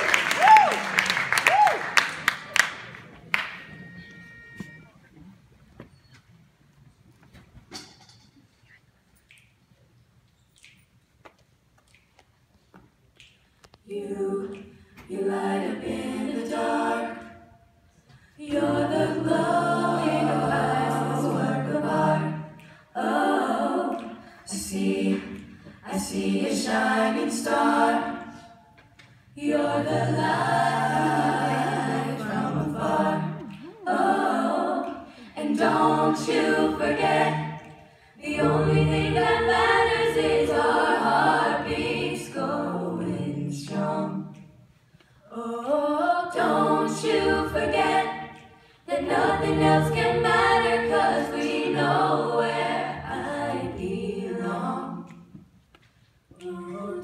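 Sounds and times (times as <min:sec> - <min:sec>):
a cappella choir singing: 0:13.8 - 0:57.0.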